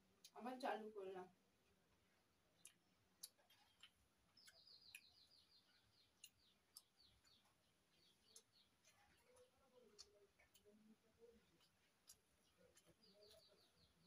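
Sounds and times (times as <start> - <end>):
bird chirping: 2.2 - 14.0
eating by hand clicks: 2.6 - 7.6, 8.2 - 14.0.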